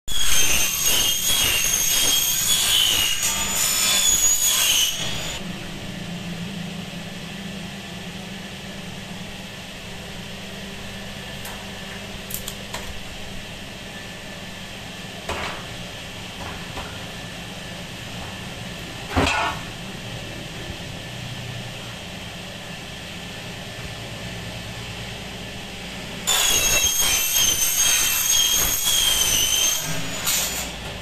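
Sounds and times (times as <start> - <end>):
power saw screeching on metal: 0.1 - 5.4, 26.2 - 30.8
steady low hum: 5.4 - 26.3.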